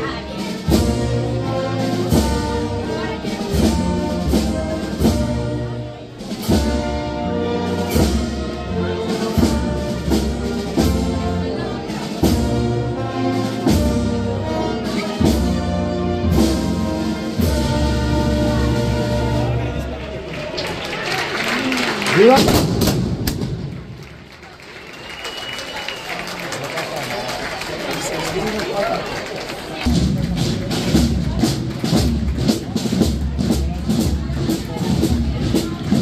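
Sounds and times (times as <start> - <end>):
brass band playing: 0.0 - 24.1, 29.2 - 36.0
drum strokes: 22.2 - 24.0, 29.8 - 36.0.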